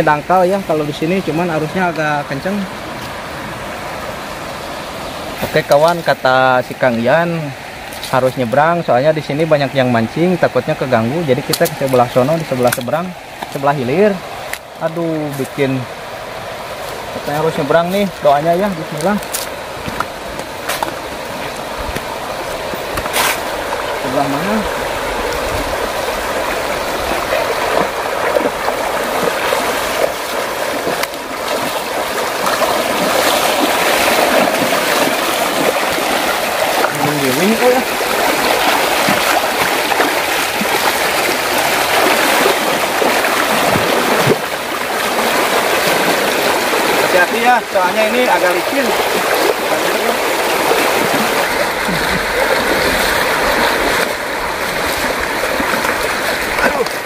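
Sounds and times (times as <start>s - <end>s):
river rushing over stones: 0.0s - 57.0s
legs splashing through water: 11.1s - 57.0s.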